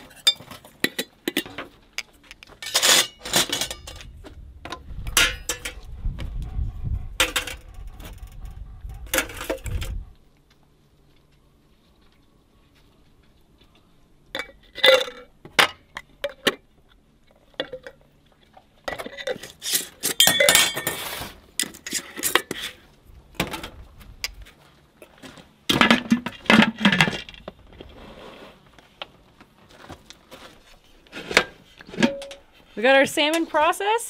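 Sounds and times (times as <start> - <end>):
glass jars clinking: 20.1 - 21.0.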